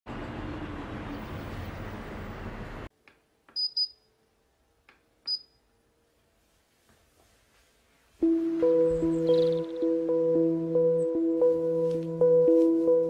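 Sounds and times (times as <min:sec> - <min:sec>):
city ambience: 0:00.1 - 0:02.9, 0:08.2 - 0:13.0.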